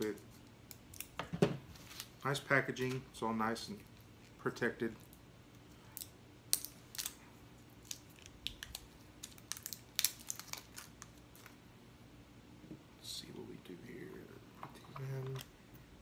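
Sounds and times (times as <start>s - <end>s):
plastic wrapping crinkling and tearing: 5.9s - 11.6s.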